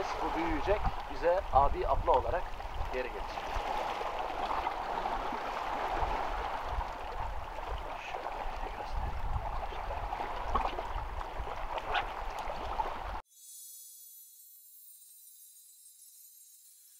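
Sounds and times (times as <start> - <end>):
seawater lapping against rocks: 0.0 - 13.2
faint high ringing tone: 13.3 - 16.9.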